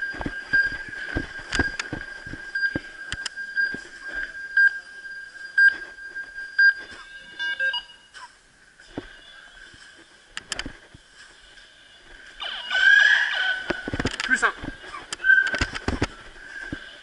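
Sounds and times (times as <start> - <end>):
high electronic tone: 0.0 - 8.2
electronic bleeps: 0.0 - 8.4.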